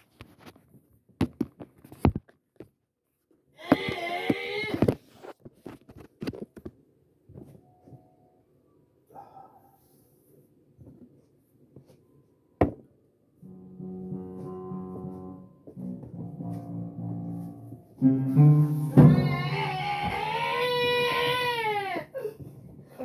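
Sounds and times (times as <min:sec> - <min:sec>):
loud high wail: 0:19.0 - 0:22.2.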